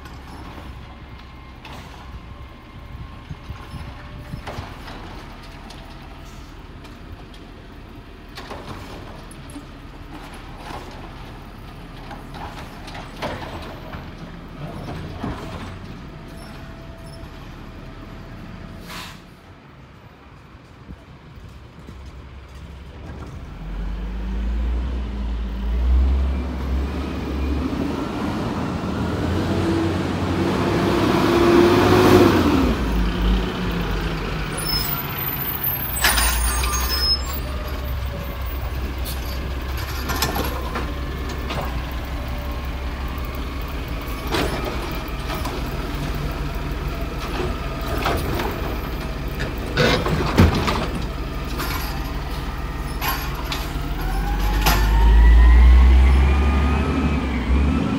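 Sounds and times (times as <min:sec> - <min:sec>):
garbage truck diesel engine: 0:00.0 - 0:57.9
air brakes hissing: 0:18.8 - 0:19.4.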